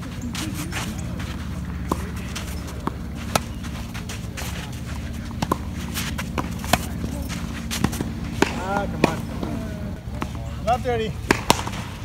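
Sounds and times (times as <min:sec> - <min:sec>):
steady low hum: 0:00.0 - 0:12.0
racket striking tennis ball: 0:00.3 - 0:10.4, 0:11.2 - 0:12.0
ball bouncing on hard court: 0:05.4 - 0:10.4, 0:11.2 - 0:11.8.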